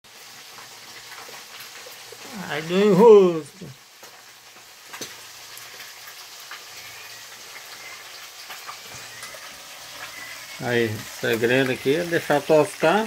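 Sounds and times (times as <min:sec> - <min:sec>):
fish sizzling in oil: 0:00.0 - 0:13.0
oil popping: 0:00.3 - 0:13.0.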